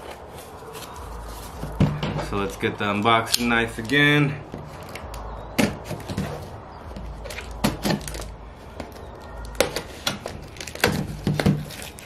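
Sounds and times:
knife cutting packing tape: 0:09.5 - 0:12.0.

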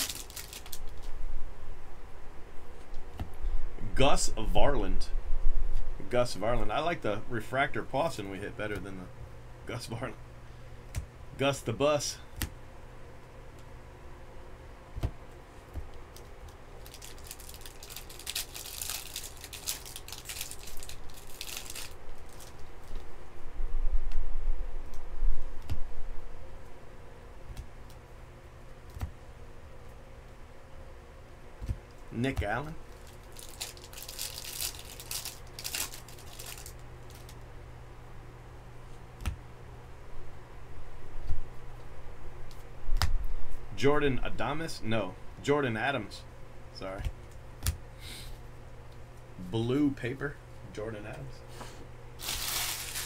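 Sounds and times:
foil wrapper crinkling and tearing: 0:00.0 - 0:01.1, 0:16.8 - 0:23.0, 0:32.8 - 0:37.4, 0:52.2 - 0:53.0
low hum: 0:00.0 - 0:53.0
cards being handled: 0:15.0 - 0:23.1, 0:31.6 - 0:37.4, 0:52.2 - 0:53.0.

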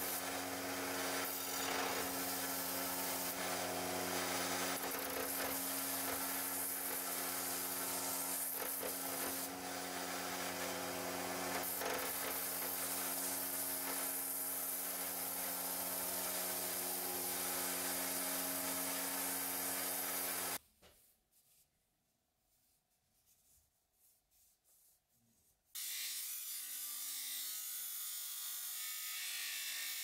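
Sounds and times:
belt grinder grinding steel: 0:00.0 - 0:20.6.

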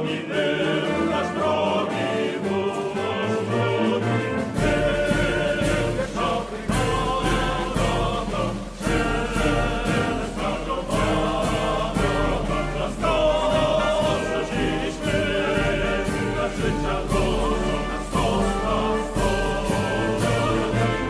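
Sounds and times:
choir singing with accompaniment: 0:00.0 - 0:21.0.

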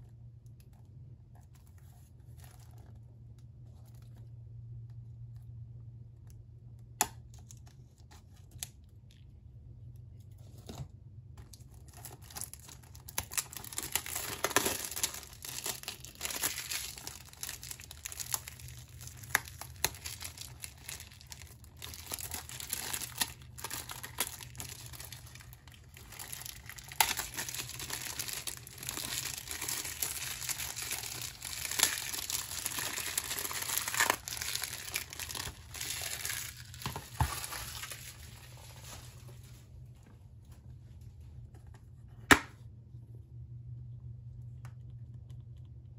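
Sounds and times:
plastic wrap crinkling and tearing: 0:11.4 - 0:39.6.

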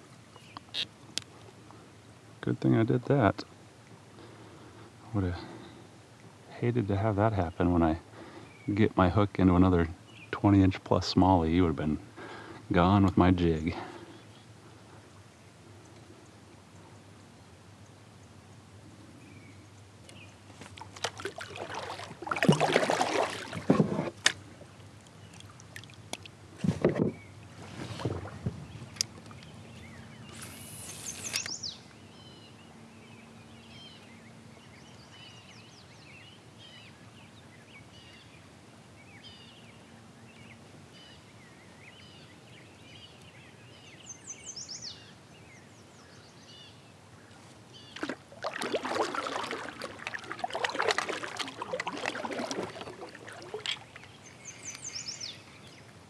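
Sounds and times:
small birds singing: 0:00.2 - 0:03.0, 0:06.6 - 0:20.5, 0:28.4 - 0:48.1, 0:51.4 - 0:56.0
kayak knocking and splashing: 0:20.5 - 0:24.7, 0:25.3 - 0:29.4, 0:48.0 - 0:55.1
sharp hiss: 0:30.3 - 0:31.5.

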